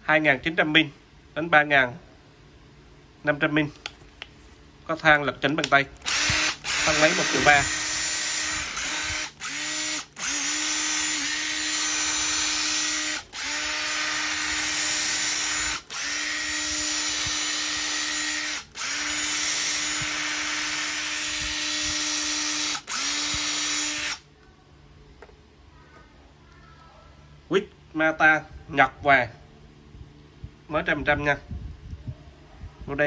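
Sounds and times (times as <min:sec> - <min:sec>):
impact driver motor whine: 0:06.0 - 0:24.2.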